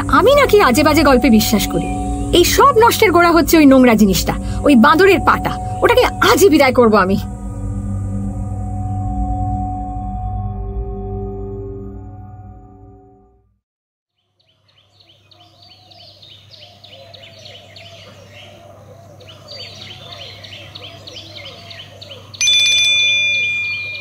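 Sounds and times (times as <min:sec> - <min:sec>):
singing bowl ringing: 0:00.0 - 0:13.4, 0:22.4 - 0:24.0
birds chirping and calling: 0:14.4 - 0:22.4.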